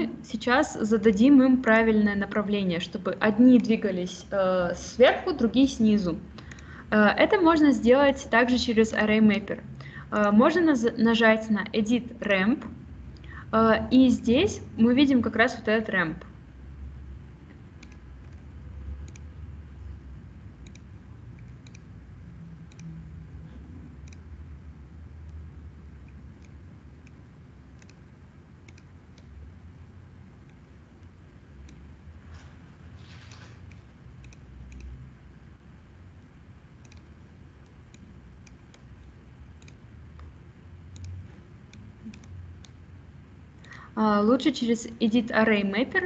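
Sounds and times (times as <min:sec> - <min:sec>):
low background hum: 0:00.0 - 0:46.0
computer mouse clicks: 0:06.4 - 0:06.7, 0:17.4 - 0:19.4, 0:20.6 - 0:24.3, 0:25.2 - 0:29.4, 0:30.4 - 0:32.0, 0:33.2 - 0:35.1, 0:36.2 - 0:42.8.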